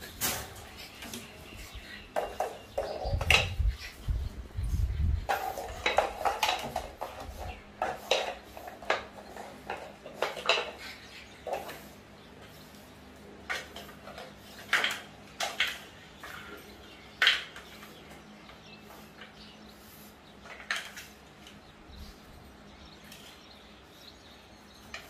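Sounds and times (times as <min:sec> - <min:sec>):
pet bowls clattering on floor: 0:05.3 - 0:11.8.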